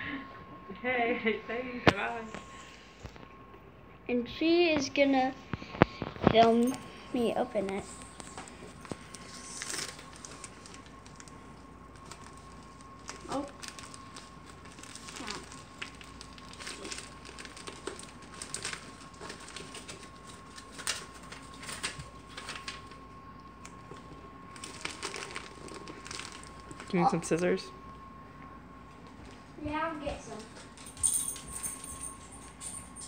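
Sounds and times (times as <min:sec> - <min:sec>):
plastic mailer crinkling: 0:08.0 - 0:23.0, 0:23.9 - 0:27.0.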